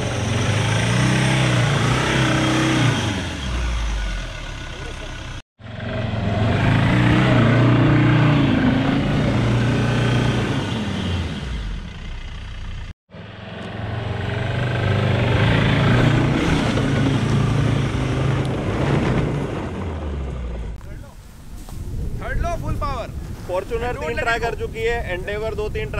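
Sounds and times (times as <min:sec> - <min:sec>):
diesel engine revving hard: 0:00.0 - 0:12.2, 0:13.1 - 0:20.7.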